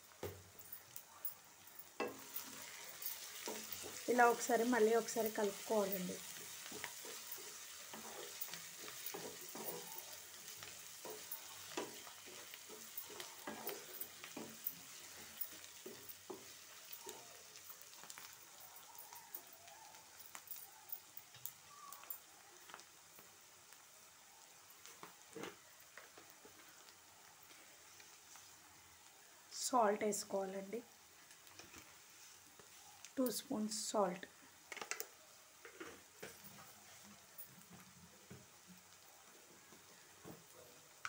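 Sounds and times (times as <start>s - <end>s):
onions sizzling in oil: 0.0s - 41.0s
spatula scraping and tapping: 6.3s - 18.3s.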